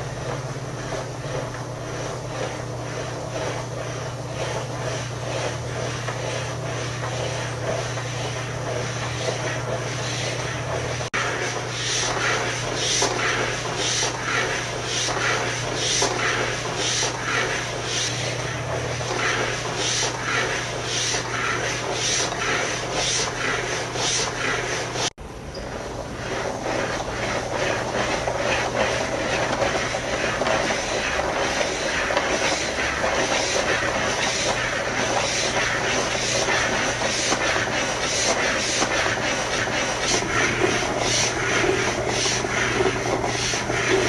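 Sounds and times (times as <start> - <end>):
steady low hum: 0.0 - 44.0
pen scratching across paper: 26.2 - 44.0.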